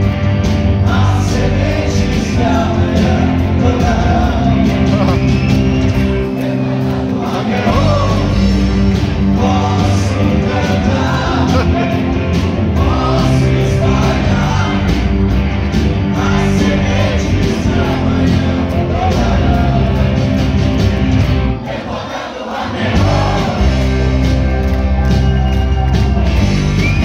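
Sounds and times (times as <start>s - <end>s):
live rock band playing: 0.0s - 21.7s, 22.6s - 27.0s
person singing: 0.9s - 5.3s, 9.3s - 12.1s.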